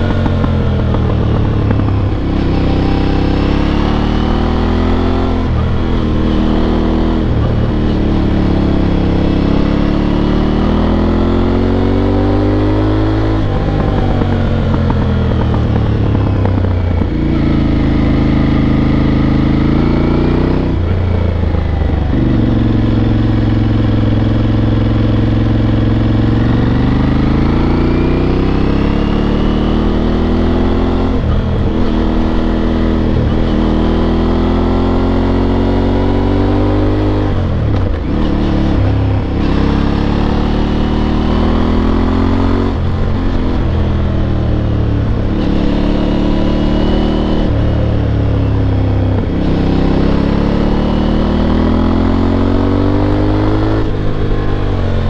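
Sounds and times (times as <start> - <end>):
motorcycle engine accelerating: 0.0 - 55.0.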